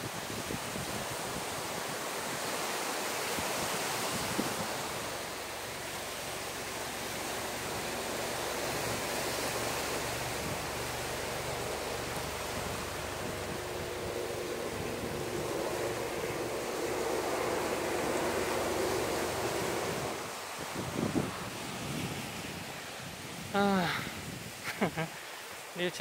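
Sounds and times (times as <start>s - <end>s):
wind on microphone: 0.0s - 25.2s
surf washing on beach: 0.0s - 26.0s
low steady hum: 4.2s - 22.6s.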